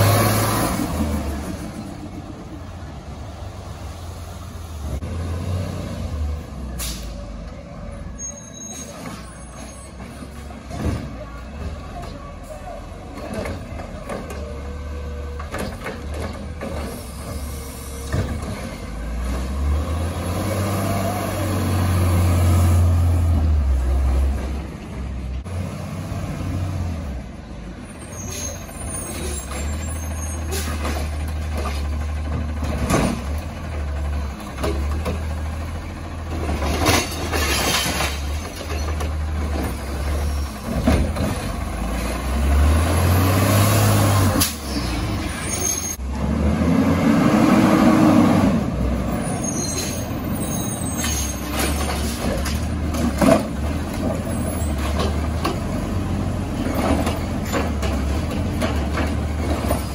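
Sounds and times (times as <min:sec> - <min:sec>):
diesel engine running: 0:00.0 - 0:08.0, 0:26.9 - 0:37.5
air brakes hissing: 0:06.8 - 0:07.3
metal clanks and bangs: 0:29.1 - 0:35.5, 0:36.2 - 0:41.8.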